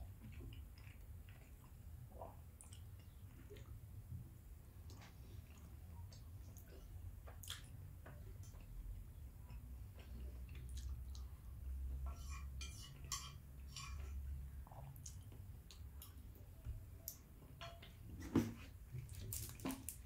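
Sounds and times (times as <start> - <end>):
chewing: 0.0 - 3.8, 4.8 - 11.4
fork scraping on plate: 12.1 - 14.2.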